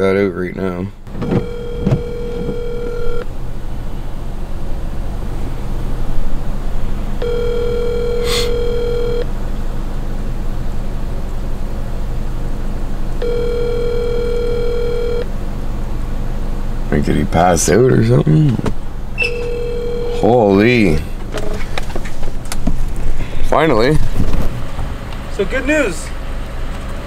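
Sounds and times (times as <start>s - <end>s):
steady low hum: 0.5s - 24.2s
telephone ringback tone: 1.1s - 3.2s, 7.2s - 9.3s, 13.2s - 15.3s, 19.2s - 21.0s.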